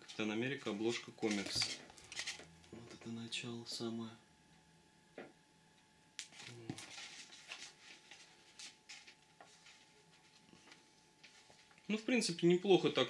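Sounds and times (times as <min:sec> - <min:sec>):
paper rustling: 0:00.9 - 0:02.5, 0:06.2 - 0:11.8.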